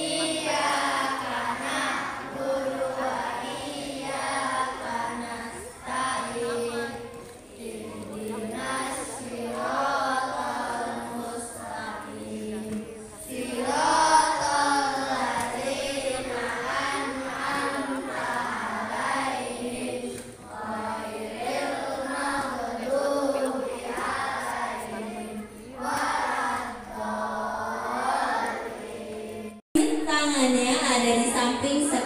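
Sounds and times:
children singing in unison: 0.0 - 29.6.

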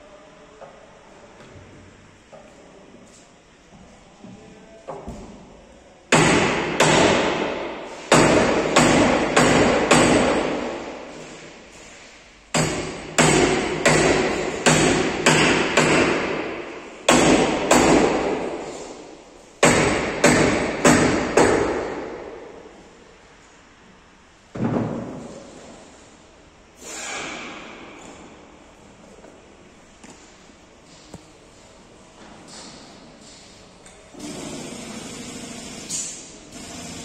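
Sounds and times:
hammer striking steel: 12.5 - 18.6.

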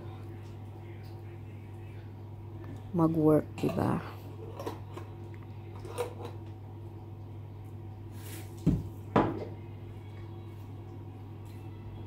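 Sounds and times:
steady low hum: 0.0 - 12.0
objects knocking on counter: 8.6 - 9.6.

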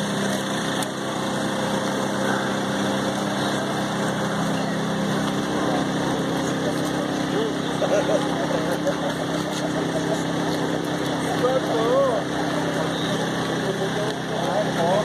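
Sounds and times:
small engine idling: 0.0 - 15.0.

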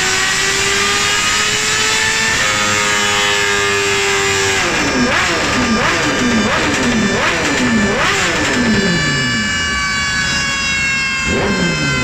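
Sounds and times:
motorcycle engine revving: 0.0 - 12.0
high whine: 3.4 - 12.0.

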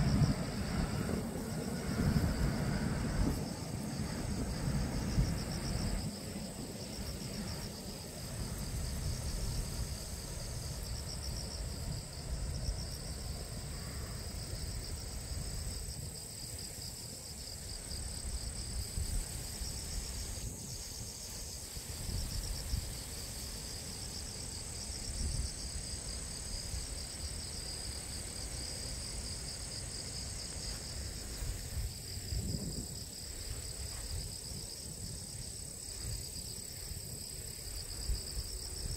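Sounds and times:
insects chorus: 0.0 - 38.9
wind rumbling on microphone: 0.0 - 38.9.

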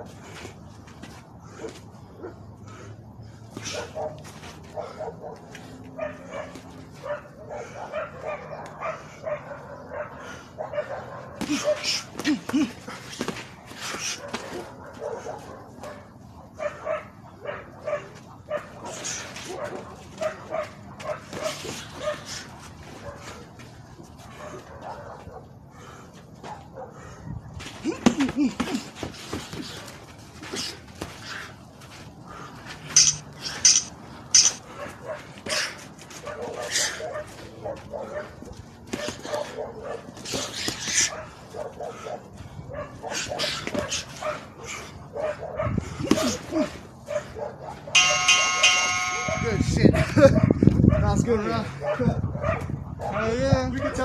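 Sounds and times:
dog barking: 3.7 - 12.0, 14.1 - 22.3, 23.0 - 23.4, 24.3 - 25.5, 26.4 - 27.1, 34.4 - 40.1, 41.0 - 46.3, 47.0 - 49.6, 50.2 - 54.0
gloved punches: 11.4 - 14.7, 27.8 - 29.8, 46.0 - 46.4
punches smacking focus mitts: 46.0 - 46.6.

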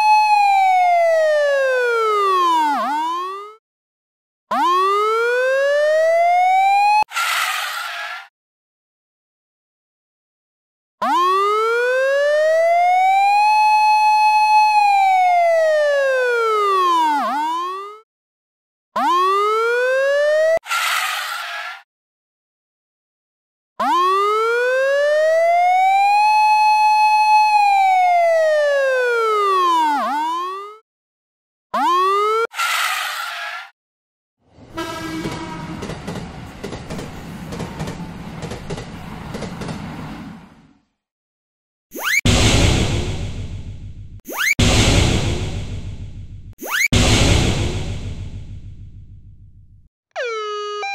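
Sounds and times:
siren wailing: 0.0 - 3.6, 4.5 - 8.3, 11.0 - 18.0, 19.0 - 21.8, 23.8 - 30.8, 31.8 - 33.4, 34.7 - 36.0, 50.2 - 50.9
train rumble: 34.5 - 40.7
train horn tone: 34.6 - 36.4
wheels clicking over rail joints: 35.2 - 40.3.

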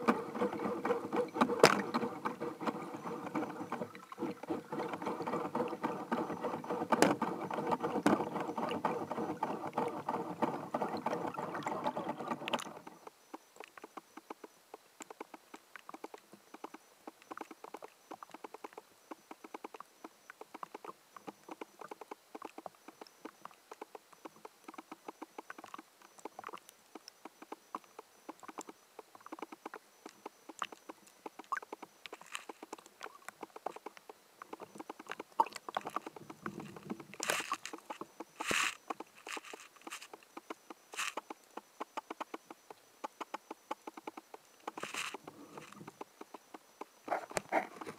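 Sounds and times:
underwater machine drone: 0.0 - 13.1
fine crackle of clicks: 12.4 - 47.9.

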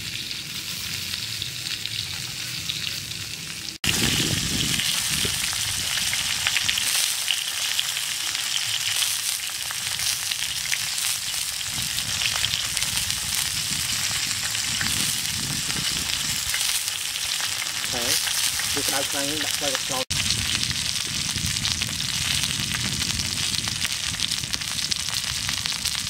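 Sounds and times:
chicken sizzling on metal tray: 0.0 - 26.0.

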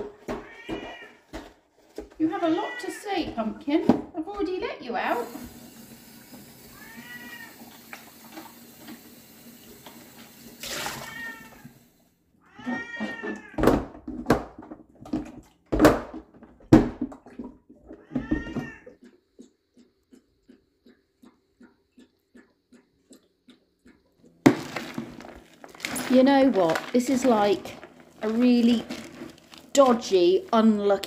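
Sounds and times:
cat meowing: 0.3 - 1.2, 6.7 - 7.6, 10.6 - 11.7, 12.4 - 13.6, 18.0 - 19.0
tap running into sink: 5.2 - 11.7.

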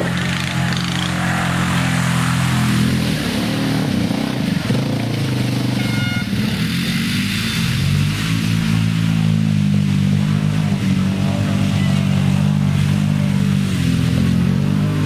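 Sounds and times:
atv engines revving in mud: 0.0 - 15.0
brief high tone: 5.8 - 6.4.

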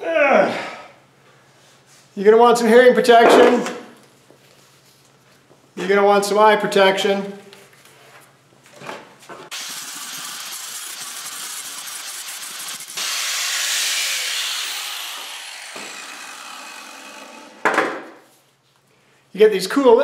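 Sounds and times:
angle grinder running: 9.5 - 17.7
grinder cutting sheet metal: 9.5 - 17.7.

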